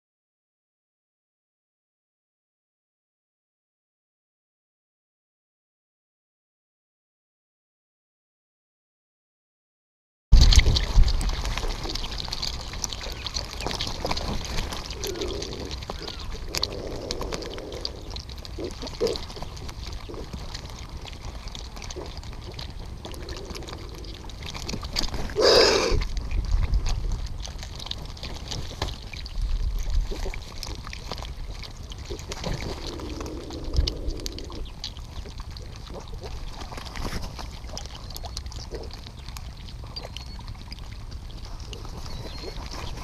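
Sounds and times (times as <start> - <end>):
beaks and feet clicking: 10.4 - 43.0.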